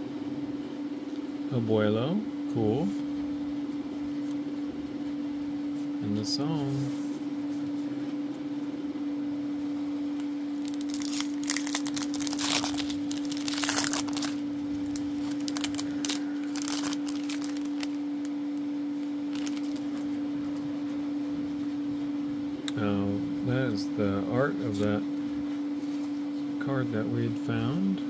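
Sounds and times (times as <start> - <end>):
steady hum: 0.0 - 28.0
cards rustling: 10.6 - 18.0, 19.3 - 20.1
foil wrapper crinkling and tearing: 10.6 - 18.3, 19.0 - 20.1.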